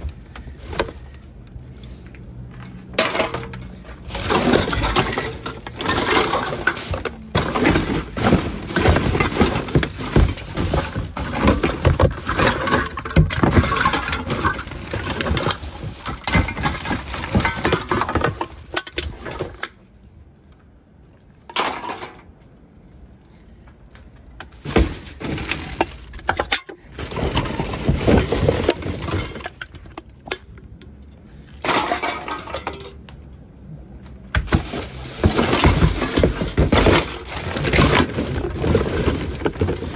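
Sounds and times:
rummaging through trash: 0:00.0 - 0:19.8, 0:24.5 - 0:30.4, 0:31.4 - 0:33.0, 0:34.3 - 0:39.9
packaging rustling and crinkling: 0:04.0 - 0:19.7, 0:24.5 - 0:29.6, 0:34.4 - 0:39.9.

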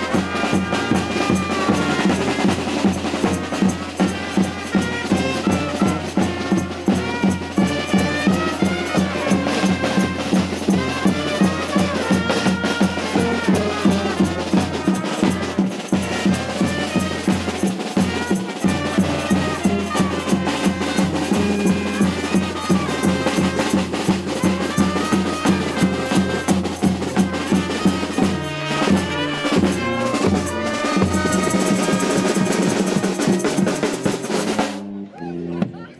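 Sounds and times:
music with drum beat and bass: 0:00.0 - 0:34.9.

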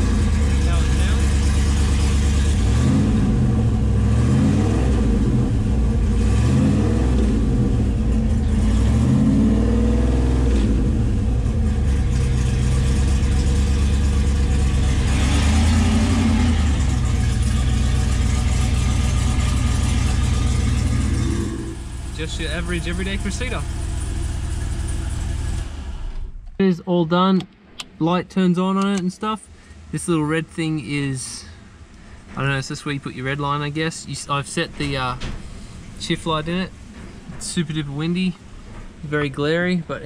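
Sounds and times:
car engine revving and idling: 0:00.0 - 0:26.5.

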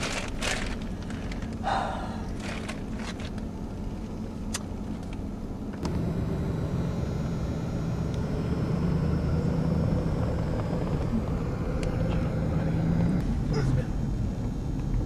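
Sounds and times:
vehicle engine running: 0:05.7 - 0:15.0.

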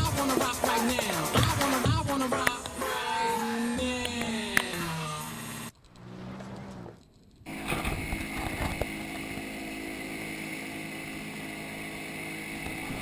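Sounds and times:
motorboat engine drone: 0:03.4 - 0:13.0.

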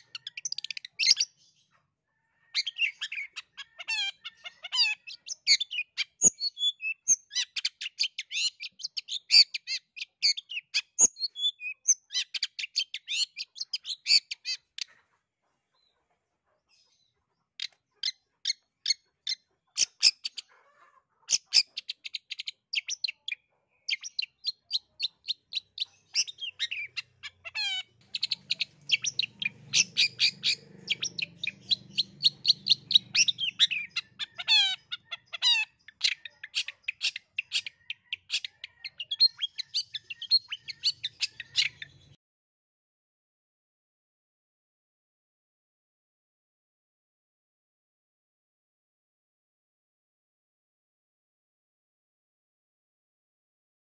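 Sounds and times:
bird singing rapid chatter: 0:00.0 - 0:01.7, 0:02.5 - 0:15.0, 0:21.3 - 0:42.2.

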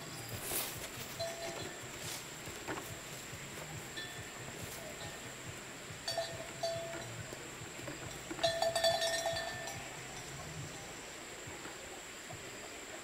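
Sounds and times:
high-pitched whine: 0:00.0 - 0:13.0
metal bell clanking: 0:01.1 - 0:02.2, 0:03.9 - 0:04.4, 0:06.1 - 0:07.2, 0:08.0 - 0:10.9.

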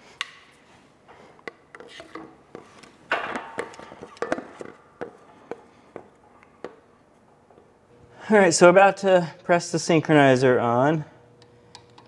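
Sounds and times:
parts tapping and clicking: 0:01.4 - 0:06.9.

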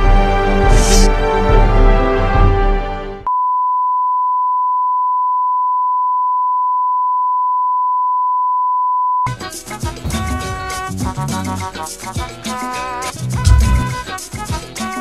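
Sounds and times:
channel ident music: 0:13.4 - 0:14.0.

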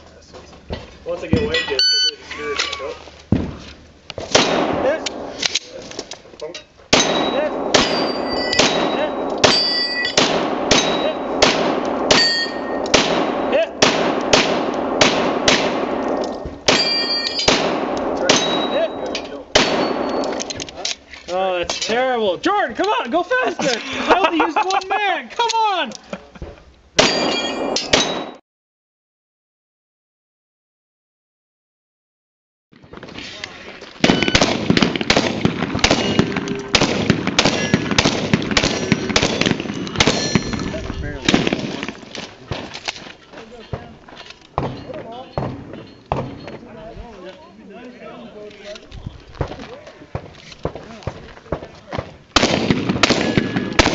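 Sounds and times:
pistol shots: 0:04.2 - 0:05.3, 0:06.9 - 0:20.7, 0:34.0 - 0:42.7, 0:51.6 - 0:53.9
rapid gunfire: 0:07.0 - 0:12.3, 0:12.9 - 0:16.1, 0:34.0 - 0:42.1, 0:52.4 - 0:53.9
steel target ringing: 0:07.0 - 0:13.6, 0:16.7 - 0:17.6, 0:18.3 - 0:20.4, 0:27.0 - 0:28.4, 0:35.8 - 0:38.0, 0:38.6 - 0:40.7.

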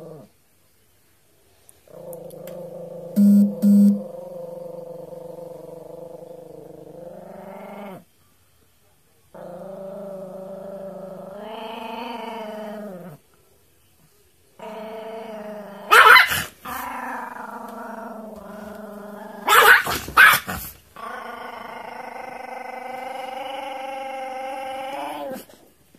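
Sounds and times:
dog growling: 0:01.9 - 0:03.2, 0:04.0 - 0:08.1, 0:09.3 - 0:13.2, 0:14.6 - 0:25.7.

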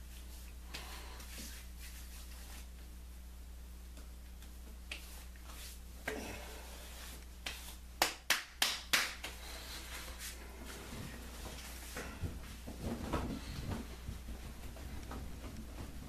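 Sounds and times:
hands slapping face: 0:04.0 - 0:05.7, 0:07.4 - 0:09.4.

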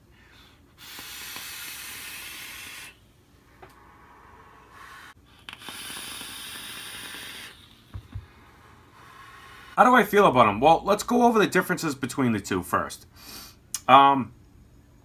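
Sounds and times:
vape draw hiss: 0:00.8 - 0:03.0, 0:04.7 - 0:09.8.

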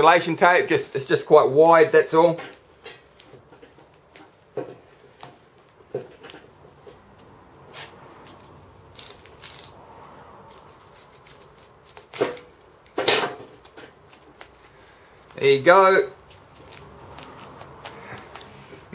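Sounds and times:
utility knife cutting tape: 0:08.3 - 0:09.8, 0:10.5 - 0:12.4
handling sounds: 0:10.5 - 0:18.9.

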